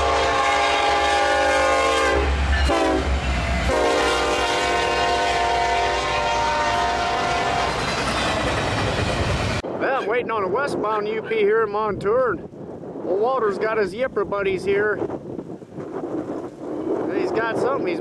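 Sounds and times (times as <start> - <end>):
locomotive air horn: 0.0 - 7.8
train rumbling: 0.0 - 10.5.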